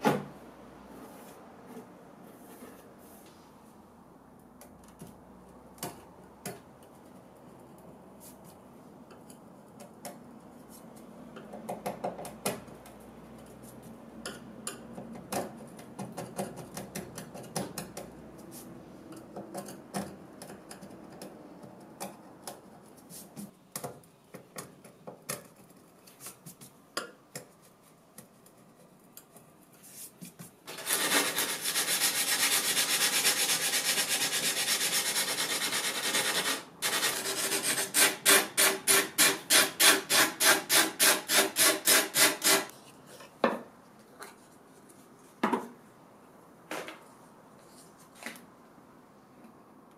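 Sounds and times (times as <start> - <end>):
hand sanding with abrasive paper: 29.9 - 42.7
metal scraper scraping glass: 30.7 - 42.7.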